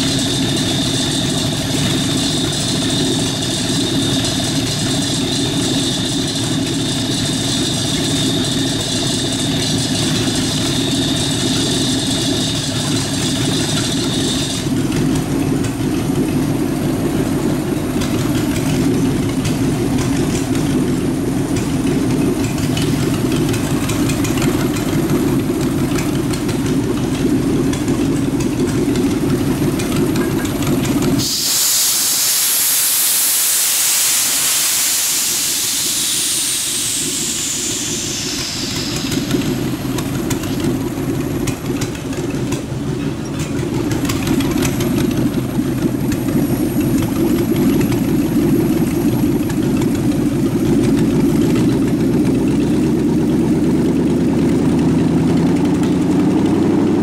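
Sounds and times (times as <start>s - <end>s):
truck engine idling: 0.0s - 57.0s
compressed air hissing: 31.1s - 41.4s.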